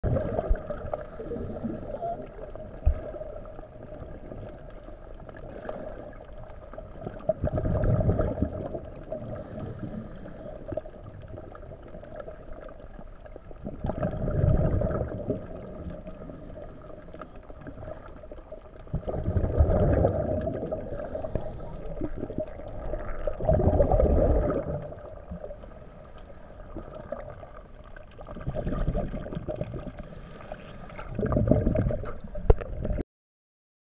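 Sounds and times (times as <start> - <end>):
diver's breath bubbling: 7.0 - 10.7, 13.6 - 18.0, 18.9 - 26.0, 28.2 - 33.0.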